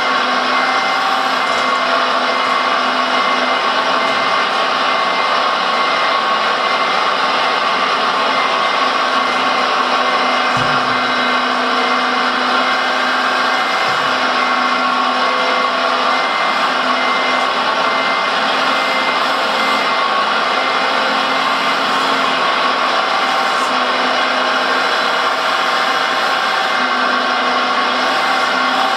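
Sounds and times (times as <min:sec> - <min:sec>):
hydraulic pump whining and hissing: 0:00.0 - 0:28.9.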